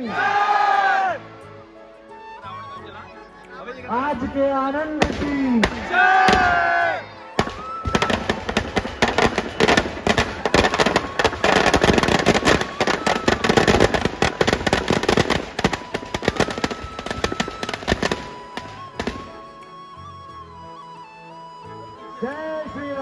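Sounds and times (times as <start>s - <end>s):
firecrackers crackling: 4.2s - 20.2s.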